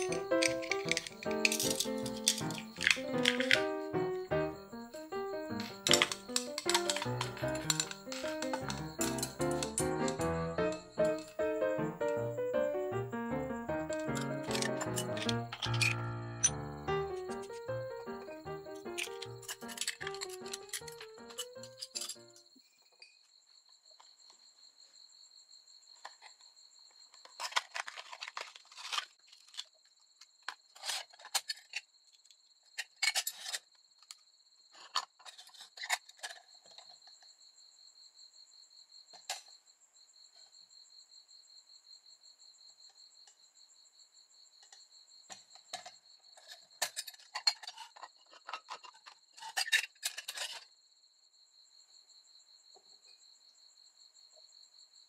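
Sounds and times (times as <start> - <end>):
lantern parts clinking: 0.0 - 3.8, 5.5 - 11.4, 13.8 - 17.7, 18.5 - 22.4
high trill like crickets: 0.0 - 22.5.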